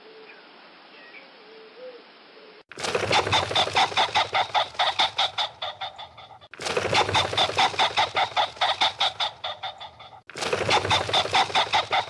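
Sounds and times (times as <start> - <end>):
pheasant calling: 2.8 - 12.0.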